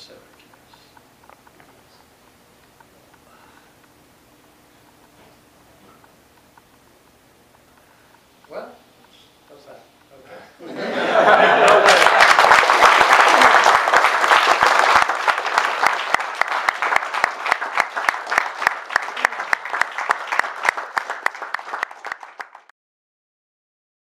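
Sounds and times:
audience applauding: 11.1s - 22.7s.

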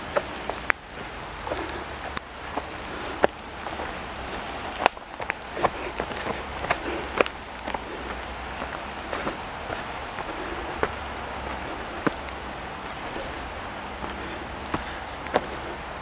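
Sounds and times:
rain pattering on leaves: 0.0s - 16.0s
sharp rain taps: 0.0s - 16.0s.

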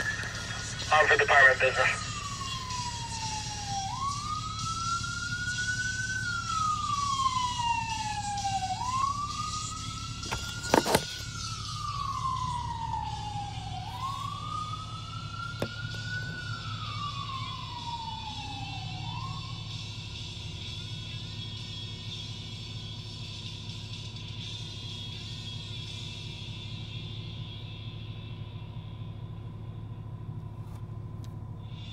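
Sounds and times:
low car cabin hum: 0.0s - 19.4s, 26.2s - 31.9s
ambulance siren wailing: 0.0s - 29.7s.

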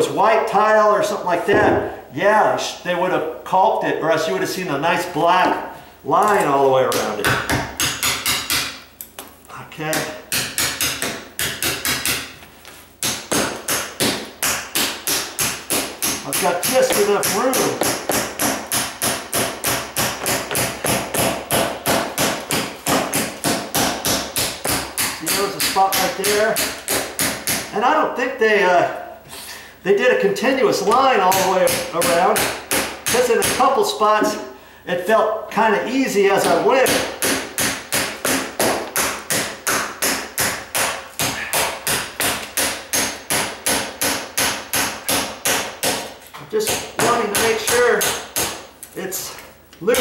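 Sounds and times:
hammer tapping putty knife: 13.0s - 27.7s.

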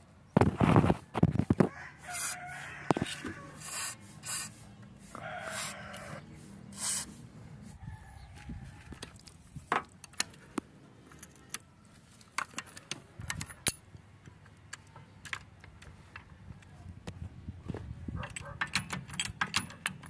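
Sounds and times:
metal socket clinking on lug nuts: 12.3s - 16.3s, 18.2s - 20.0s
steel jack handle clinking: 12.4s - 13.9s, 18.2s - 20.0s.

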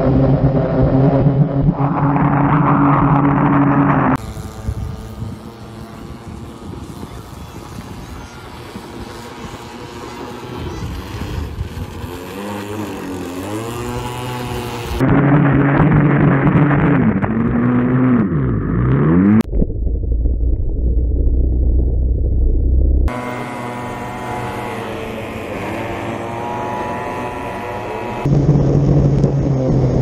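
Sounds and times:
model boat engines revving: 0.0s - 19.4s, 23.1s - 30.0s
low steady rumble: 14.8s - 25.5s.

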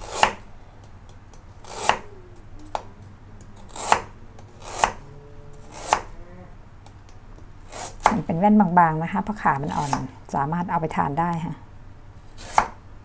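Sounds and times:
knife slicing root: 0.0s - 0.4s, 1.6s - 2.0s, 3.6s - 5.0s, 5.7s - 6.1s, 9.7s - 10.1s, 12.4s - 12.8s.

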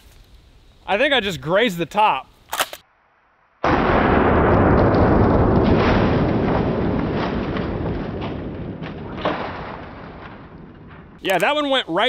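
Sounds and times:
slowed-down shotgun blast: 3.6s - 11.2s.

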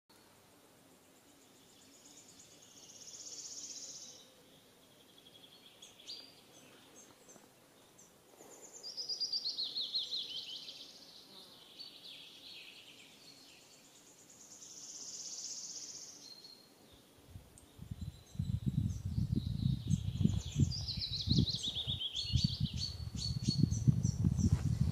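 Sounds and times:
songbirds trilling: 1.1s - 24.9s
low rumble on microphone: 17.3s - 24.9s.

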